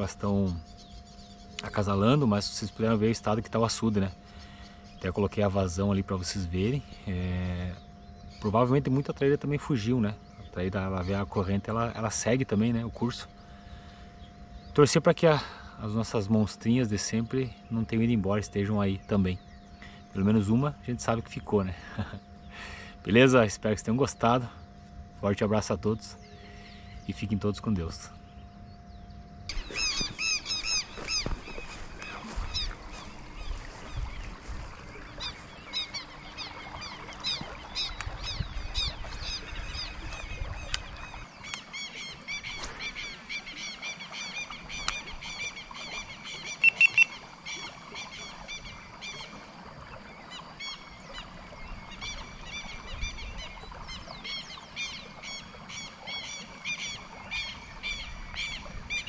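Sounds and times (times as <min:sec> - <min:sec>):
faint steady background noise: 0:00.0 - 0:59.0
small animals chirping: 0:29.5 - 0:33.2, 0:46.5 - 0:47.2.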